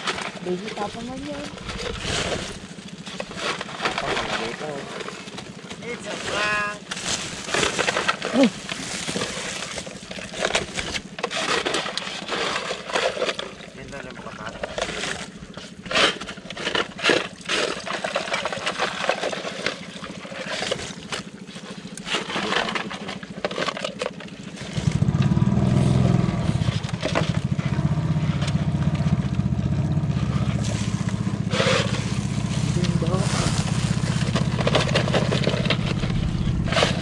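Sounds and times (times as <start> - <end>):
rustling and clicking of net trap: 6.0 - 13.6, 30.6 - 37.0
steady low rumble: 27.9 - 37.0.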